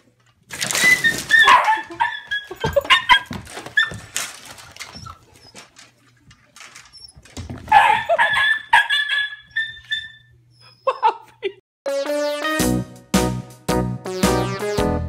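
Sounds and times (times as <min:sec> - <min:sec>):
small dog yelping and whining: 0:00.9 - 0:04.0, 0:07.0 - 0:11.1.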